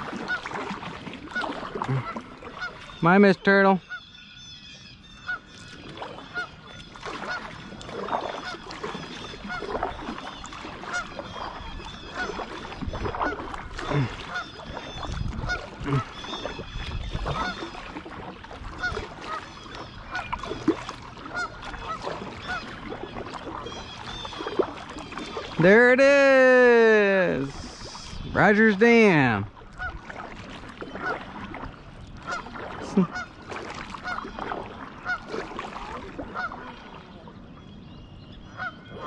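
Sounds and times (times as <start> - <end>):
geese honking: 0.1 - 0.6, 1.2 - 4.2, 5.0 - 5.5, 6.2 - 13.5, 14.2 - 18.0, 18.7 - 26.8, 32.2 - 33.4, 34.0 - 35.4, 36.3 - 36.7, 38.5 - 39.0.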